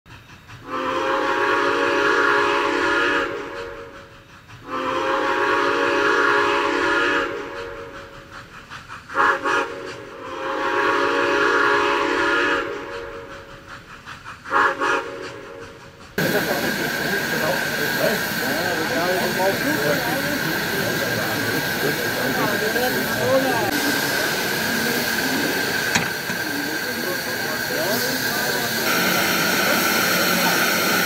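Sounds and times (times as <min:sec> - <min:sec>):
steam locomotive whistle blasts: 0:00.6 - 0:04.0, 0:04.6 - 0:07.9, 0:09.1 - 0:13.3, 0:14.5 - 0:15.8, 0:28.8 - 0:31.0.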